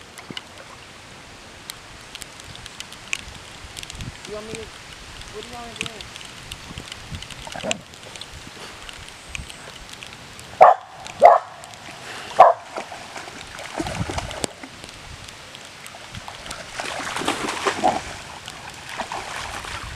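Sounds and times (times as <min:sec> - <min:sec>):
rain on water: 0:00.0 - 0:19.9
dog barking: 0:10.6 - 0:11.6, 0:12.4 - 0:12.7.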